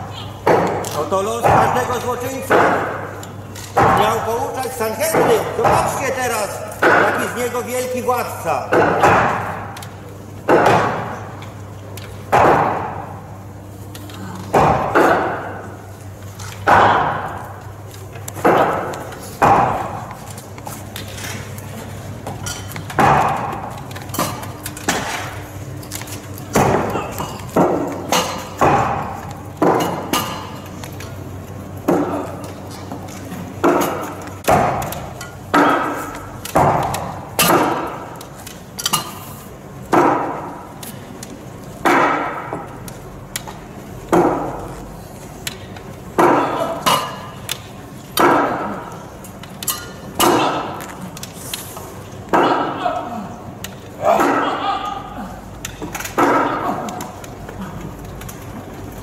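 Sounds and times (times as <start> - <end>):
hammer striking wood echoing: 0.4 - 3.2, 5.0 - 6.0, 6.8 - 7.4, 8.7 - 9.8, 10.5 - 11.3, 12.3 - 13.2, 14.5 - 15.8, 16.6 - 17.4, 18.4 - 20.1, 23.0 - 25.3, 26.5 - 30.5, 33.6 - 38.1, 39.9 - 40.6, 41.8 - 42.8, 44.1 - 44.7, 46.2 - 47.2, 48.2 - 48.9.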